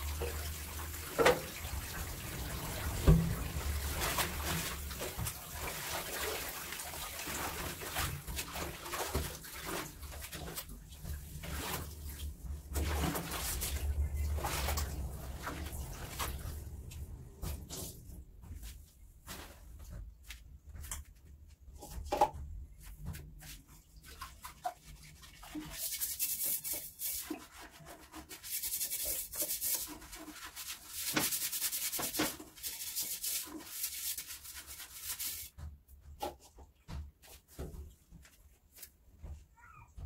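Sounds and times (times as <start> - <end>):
hand scrubbing hard surface: 0.0 - 19.8, 23.4 - 35.6.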